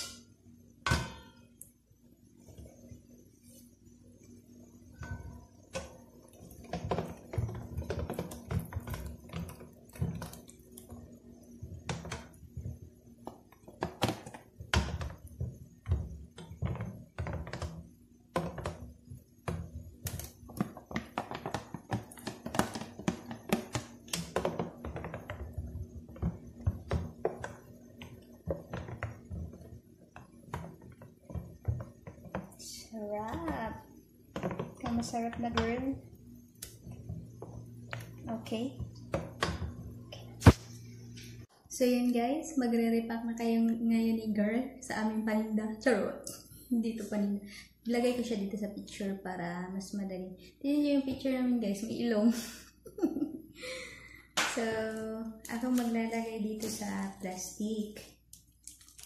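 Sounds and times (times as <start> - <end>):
spoon stirring thick mixture: 4.2 - 40.4
spoon knocking and scraping bowl: 5.0 - 32.6.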